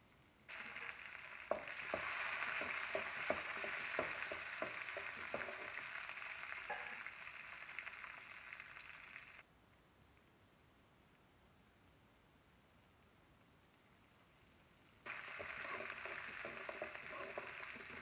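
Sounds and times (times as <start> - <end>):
spatula scraping and knocking pan: 0.5 - 7.1, 15.1 - 18.0
onions sizzling in hot oil: 0.5 - 9.4, 15.0 - 18.0.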